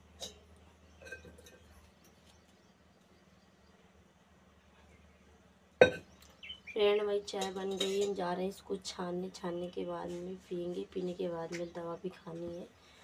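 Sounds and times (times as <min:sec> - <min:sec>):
steel pot clinking: 0:00.0 - 0:01.8, 0:05.8 - 0:06.1, 0:07.2 - 0:08.4.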